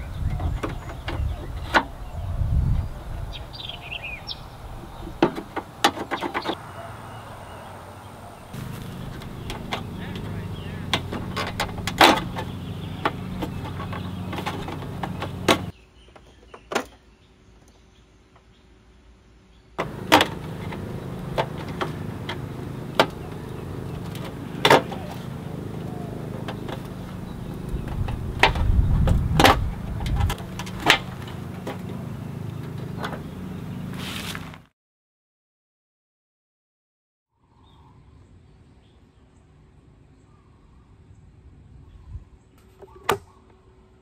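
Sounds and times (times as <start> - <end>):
steady low hum: 6.4 - 15.8, 19.8 - 34.0.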